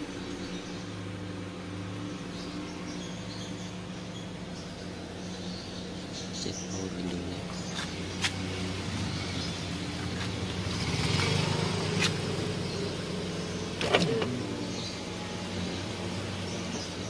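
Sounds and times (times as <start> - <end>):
car engine idling: 0.0 - 17.0
power window motor: 13.7 - 14.9.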